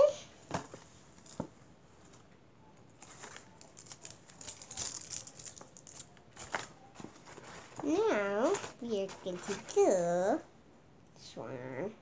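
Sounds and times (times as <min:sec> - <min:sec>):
paper bag rustling: 0:03.0 - 0:10.1.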